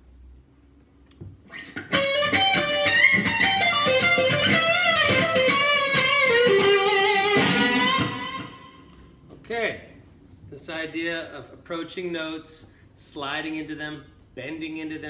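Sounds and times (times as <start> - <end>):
electric guitar blues lead: 1.5 - 9.0.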